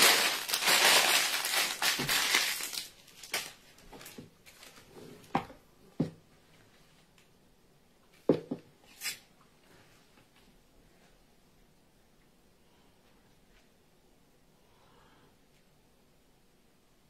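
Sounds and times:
parchment paper crinkling: 0.0s - 4.9s.

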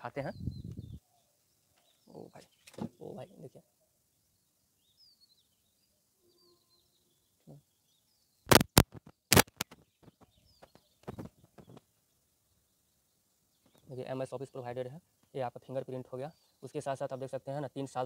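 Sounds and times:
faint birds chirping: 0.0s - 18.0s
sharp clicks and knocks: 8.5s - 9.8s.

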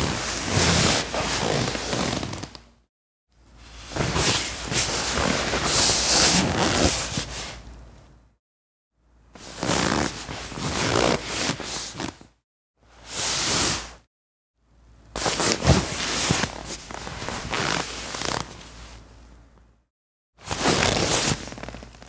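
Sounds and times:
leather sofa creaking and rustling: 0.0s - 2.7s, 3.8s - 7.5s, 9.4s - 12.4s, 15.2s - 19.0s, 20.4s - 22.0s.

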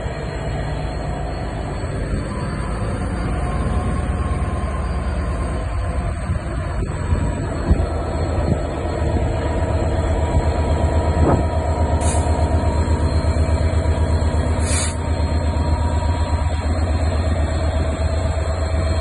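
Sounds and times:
diesel locomotive rumbling: 0.0s - 19.0s
short hisses: 14.6s - 15.0s.

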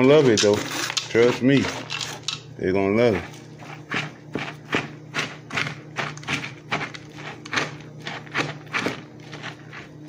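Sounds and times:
metal spoon scraping steel bowl: 0.0s - 2.4s.

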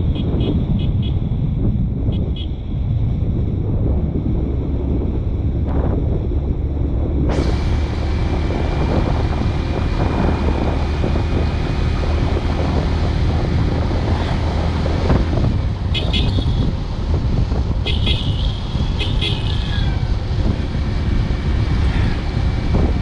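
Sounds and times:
vehicle moving on paved road: 0.0s - 23.0s
wind buffeting microphone: 0.0s - 23.0s.

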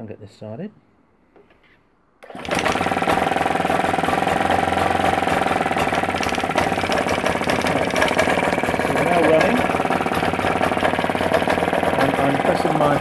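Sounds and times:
two-stroke boat engine running: 2.2s - 13.0s.

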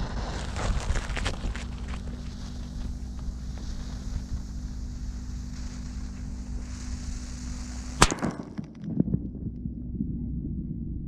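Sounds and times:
firecracker bang with echo: 7.9s - 8.6s.

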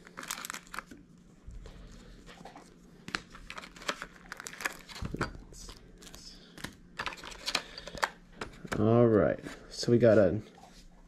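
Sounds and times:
plastic packaging crinkling: 0.0s - 1.2s, 1.8s - 8.1s.

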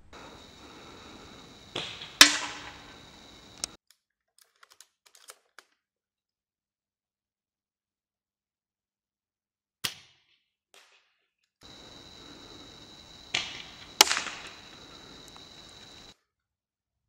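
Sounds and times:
soft rush of air: 0.0s - 3.8s
faint clicks: 0.1s - 3.8s, 11.7s - 16.1s
pellet striking metal plate: 2.2s - 3.0s.

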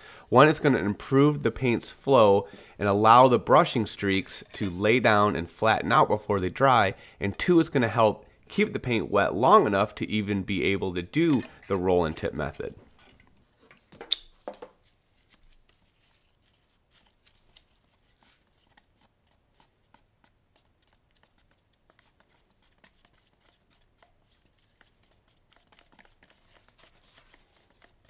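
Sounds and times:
stick scraping plastic cup: 3.7s - 5.2s.

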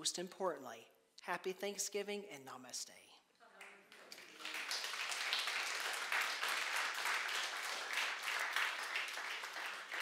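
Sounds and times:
crowd clapping: 3.6s - 10.0s.

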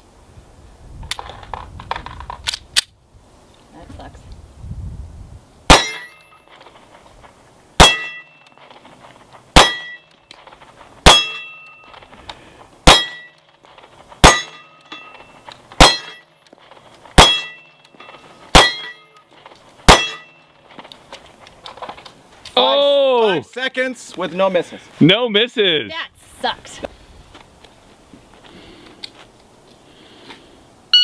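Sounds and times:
pistol shots: 5.7s - 6.2s, 7.8s - 8.3s, 9.6s - 10.0s, 11.0s - 11.6s, 12.8s - 13.3s, 14.2s - 14.7s, 15.8s - 16.2s, 17.2s - 17.7s, 18.5s - 19.0s, 19.9s - 20.3s
steel target ringing: 5.7s - 6.6s, 7.8s - 8.5s, 9.6s - 10.1s, 11.0s - 12.0s, 12.9s - 13.4s, 14.2s - 16.3s, 17.2s - 19.2s, 19.9s - 20.5s.

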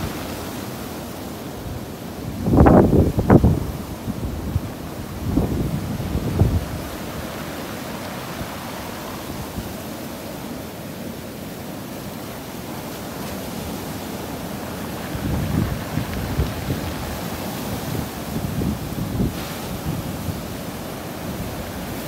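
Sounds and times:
surf breaking on pebble beach: 0.0s - 10.4s, 11.4s - 22.0s
wind buffeting microphone: 2.3s - 9.8s, 13.5s - 22.0s.

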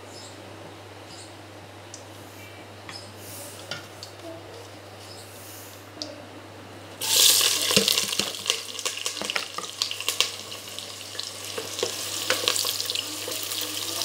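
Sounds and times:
oil popping: 7.0s - 14.0s
vegetables sizzling in hot oil: 7.0s - 14.0s.

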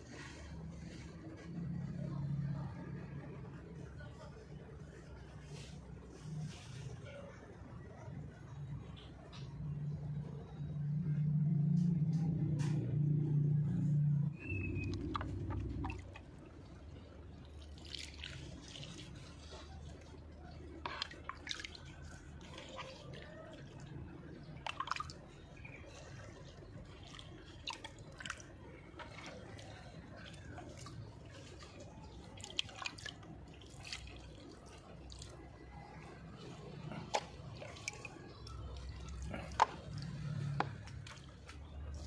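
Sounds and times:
water splashing onto soil: 17.4s - 23.8s, 24.6s - 35.4s.

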